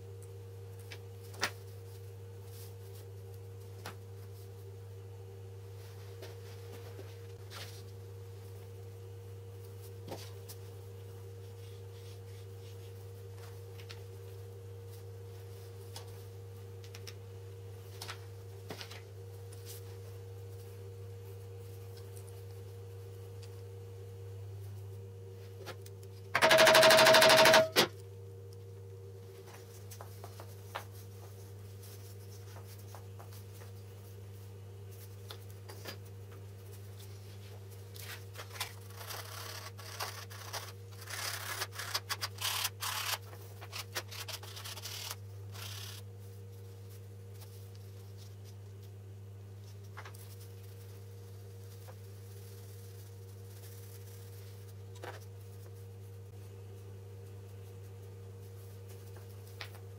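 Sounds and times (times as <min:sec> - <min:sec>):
steady low hum: 0:00.0 - 0:59.9
small parts clicking and tapping: 0:26.4 - 0:27.8.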